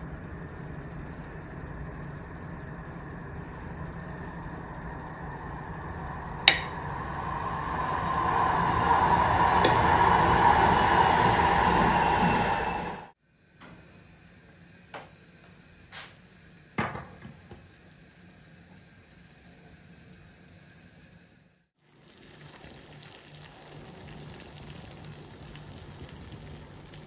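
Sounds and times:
low hum: 0.0s - 13.2s.

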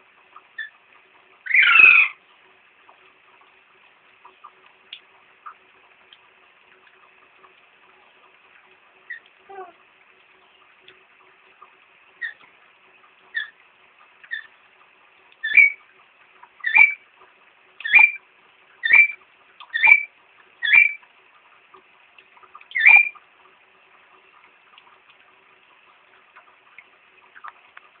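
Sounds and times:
parrot calling sharply: 1.5s - 2.2s, 22.7s - 23.1s.

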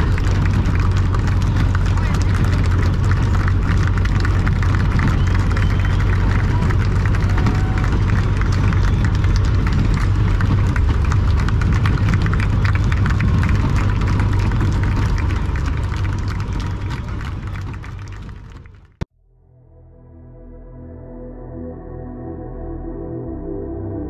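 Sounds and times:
engine crackles: 0.0s - 19.1s
tractor engine rumbling: 0.0s - 19.1s.

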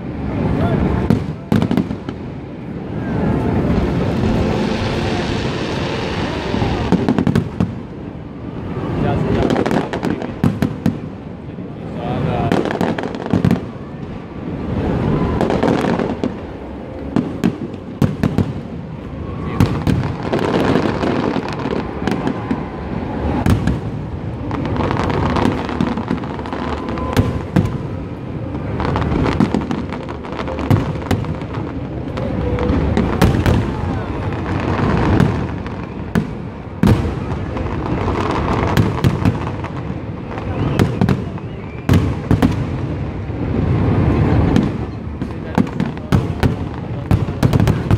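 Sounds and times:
fireworks bangs and crackles: 0.0s - 47.9s
fireworks booming: 0.0s - 47.9s
steady rumble: 2.0s - 9.4s.

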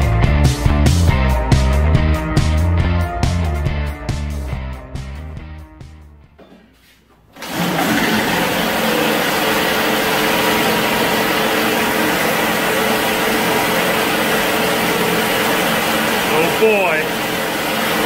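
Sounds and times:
small engine running steadily: 7.8s - 18.0s.

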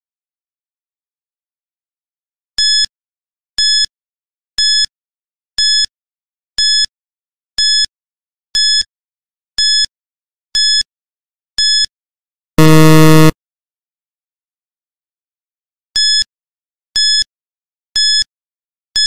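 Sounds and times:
high electronic beeps: 12.6s - 13.3s
low buzzer: 12.6s - 13.4s.

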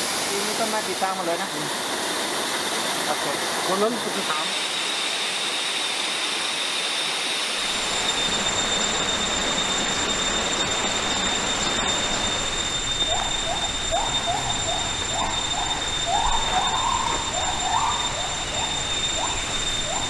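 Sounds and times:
insect chorus: 7.6s - 20.0s
animal repeated rising call: 13.0s - 20.0s.

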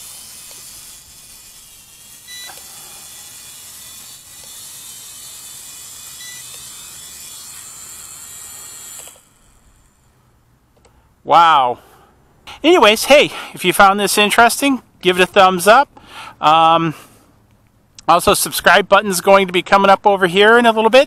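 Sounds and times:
quadcopter propellers buzzing: 0.0s - 10.1s.

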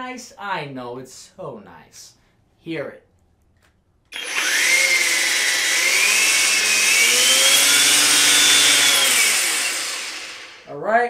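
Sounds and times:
electric edger motor whine: 4.2s - 10.6s.

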